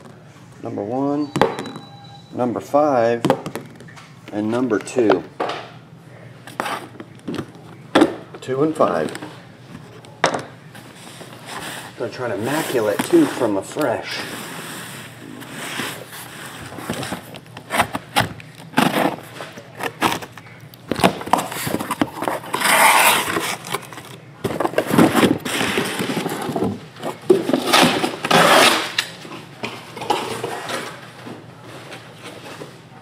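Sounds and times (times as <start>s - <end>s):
cardboard scraping and rustling: 10.8s - 29.0s.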